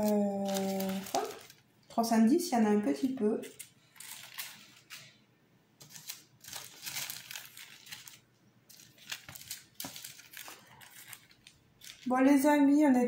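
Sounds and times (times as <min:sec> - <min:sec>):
plastic bags crinkling: 0:00.0 - 0:01.8, 0:03.4 - 0:05.2, 0:05.8 - 0:12.2.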